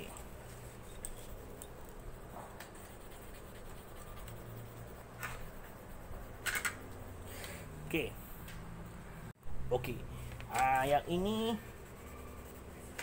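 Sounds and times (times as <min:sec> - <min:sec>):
pencil scratching on paper: 0:00.1 - 0:06.6, 0:11.2 - 0:13.0.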